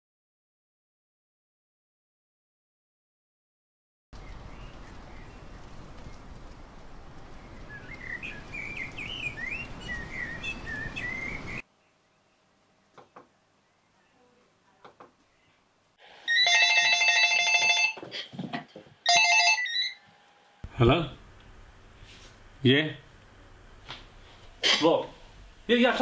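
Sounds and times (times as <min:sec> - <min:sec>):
birds chirping: 0:04.2 - 0:15.7
phone ringing electronic trill: 0:16.3 - 0:18.0, 0:19.1 - 0:20.0.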